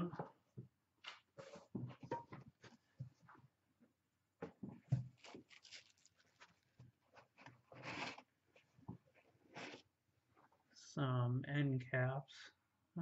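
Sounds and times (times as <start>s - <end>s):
cardboard box rustling: 5.0s - 8.3s.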